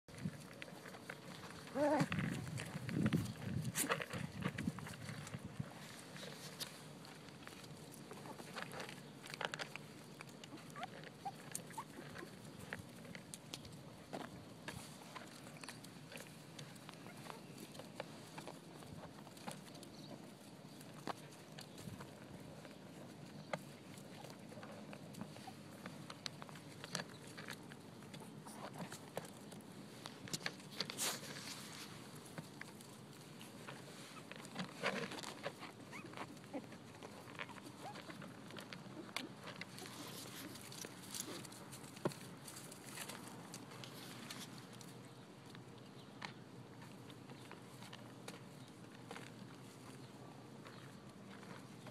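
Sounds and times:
light clicks and rustles: 0.1 - 51.9
puppies scuffling: 0.1 - 51.9
puppy squeaks: 10.7 - 12.2, 35.9 - 36.6.

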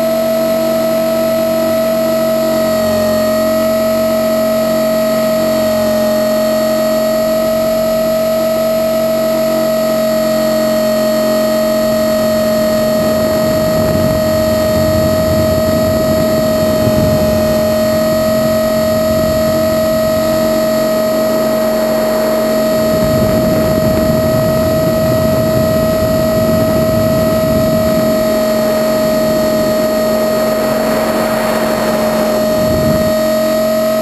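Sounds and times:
rc helicopter motor whine: 0.0 - 34.0
wind rushing on microphone: 10.9 - 34.0.

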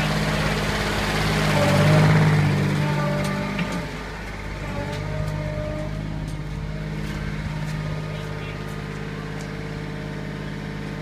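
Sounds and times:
skid steer engine running: 0.0 - 11.0.

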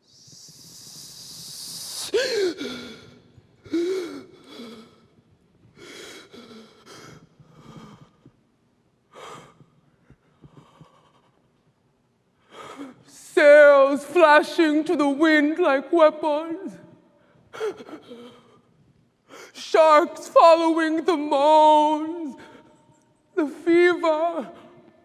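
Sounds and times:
woman hissing breath: 0.1 - 4.9
woman panting and gasping: 0.5 - 8.4
woman moaning cries: 2.1 - 3.1.

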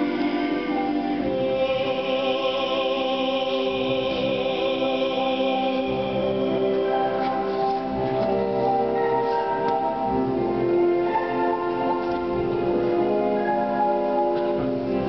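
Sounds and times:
man singing with vibrato: 0.0 - 6.7.

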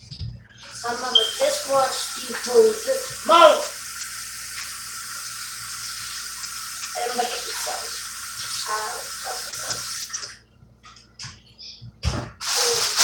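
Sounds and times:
tap running into sink: 0.2 - 4.8
dishes being washed: 0.5 - 11.4, 12.0 - 13.0.

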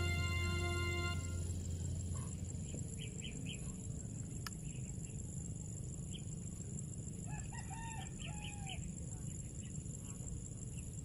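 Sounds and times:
chicken calling: 0.0 - 1.4
low rumble: 0.0 - 4.1
crickets droning: 0.0 - 11.0.

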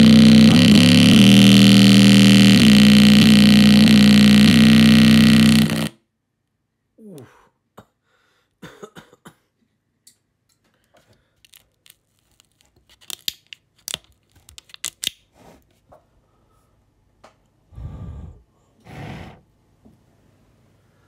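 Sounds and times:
speaker cone crinkling and clicking: 11.4 - 15.2.

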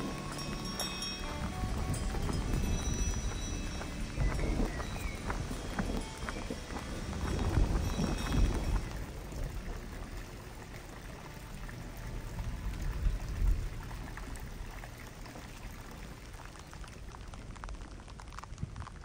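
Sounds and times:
low rumbles: 0.0 - 19.0
rain on wet pavement: 0.0 - 19.0
water pouring and trickling: 0.0 - 19.0.

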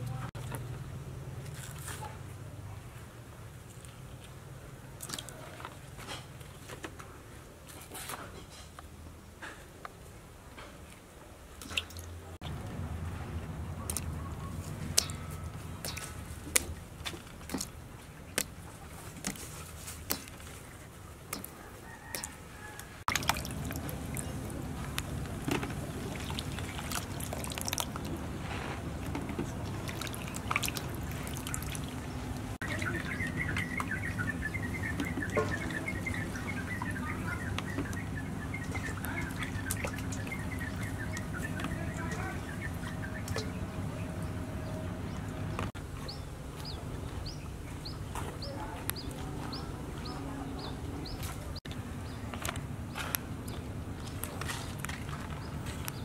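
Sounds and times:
water sloshing: 10.8 - 56.0
birds chirping: 12.4 - 56.0
water dripping in a steel bowl: 13.8 - 16.8, 23.1 - 28.2, 29.4 - 43.6.

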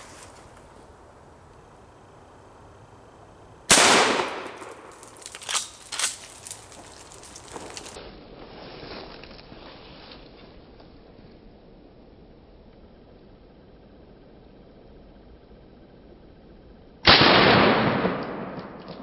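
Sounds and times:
shotgun shot: 3.7 - 4.9, 17.1 - 19.0.

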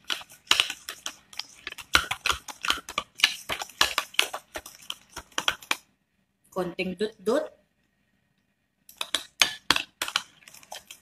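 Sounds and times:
spoon clinking and scraping bowl: 0.0 - 5.8, 8.9 - 11.0
spoon stirring in a bowl: 0.0 - 5.9, 8.9 - 11.0.

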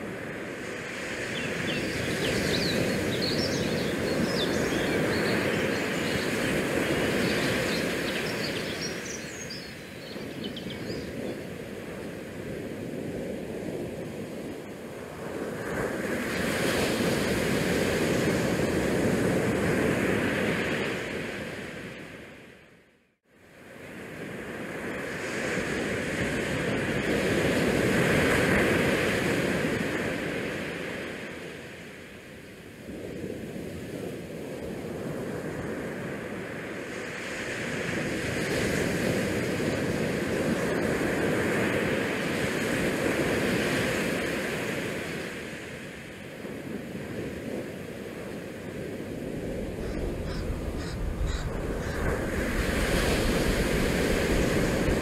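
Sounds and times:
wind buffeting microphone: 48.6 - 55.0.

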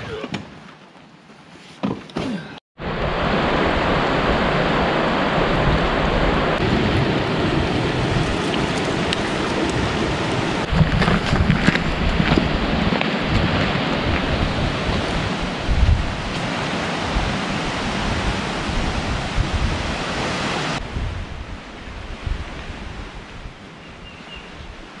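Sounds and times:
stream rushing: 2.8 - 25.0
footsteps on rocky trail: 8.2 - 15.2.

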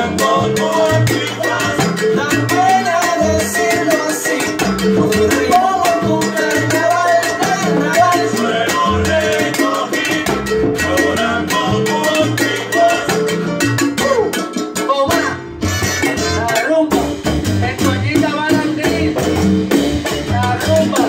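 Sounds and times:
man singing into a microphone: 0.0 - 15.4, 16.0 - 21.0
bass line: 0.0 - 21.0
conga drums: 0.0 - 21.0
live salsa music: 0.0 - 21.0.

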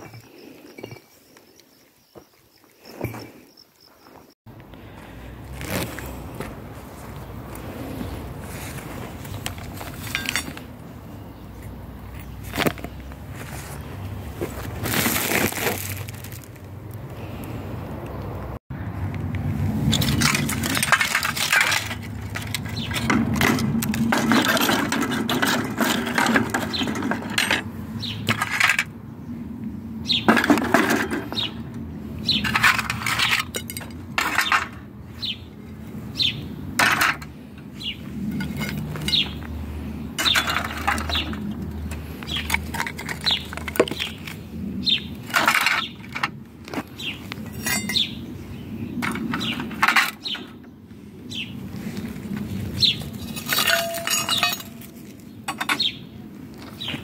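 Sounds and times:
scrap metal clinking and rattling: 0.0 - 1.2, 8.4 - 10.8, 19.8 - 28.9, 30.2 - 31.6, 32.3 - 34.9, 36.8 - 39.5, 40.2 - 44.4, 45.2 - 46.8, 47.4 - 48.2, 49.0 - 50.5, 52.8 - 55.9.

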